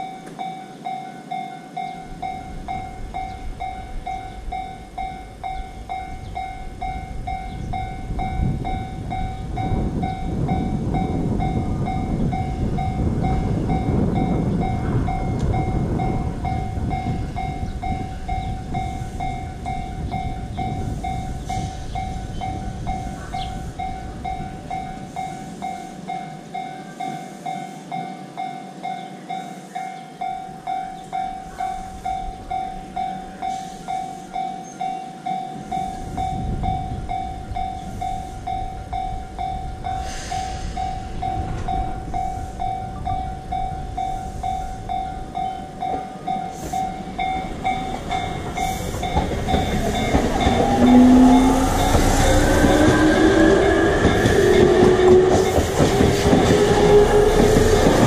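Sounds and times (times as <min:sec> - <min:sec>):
train passing with rising whine: 0:00.0 - 0:58.0
level crossing alarm ringing: 0:40.8 - 0:58.0.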